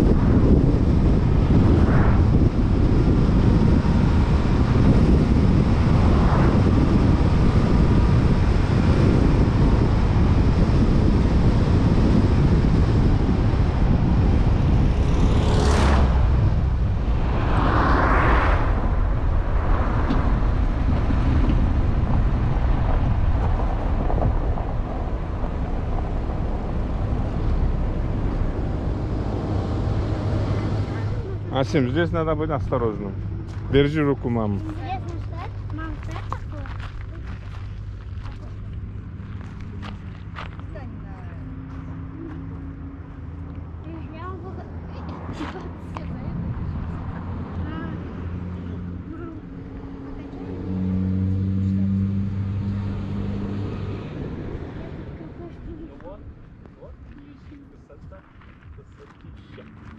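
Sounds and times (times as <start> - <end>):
tyre and wind noise: 0.0 - 59.9
brief whoosh: 15.6 - 20.6.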